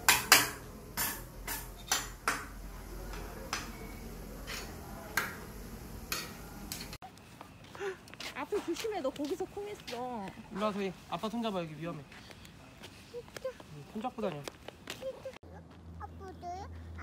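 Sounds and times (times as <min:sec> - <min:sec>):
dishes and cutlery clinking: 0:00.0 - 0:02.5, 0:03.1 - 0:05.4.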